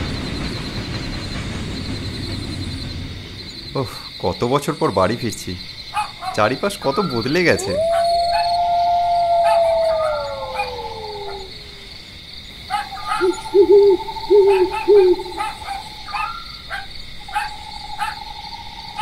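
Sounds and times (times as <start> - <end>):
crickets chirring: 0.0 - 19.0
owl hoots: 6.0 - 12.0, 12.7 - 18.4
canine howl: 6.0 - 18.2.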